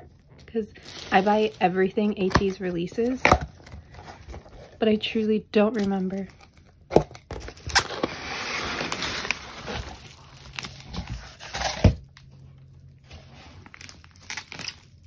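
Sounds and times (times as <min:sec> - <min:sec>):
packaging rustling and tearing: 0:00.2 - 0:04.8, 0:05.8 - 0:15.0.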